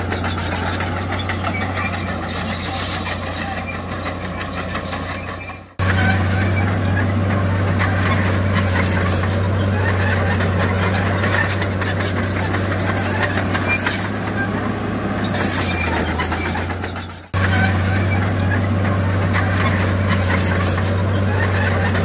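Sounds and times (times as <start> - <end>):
heavy machinery clattering: 0.0 - 22.0
low diesel engine hum: 0.0 - 22.0.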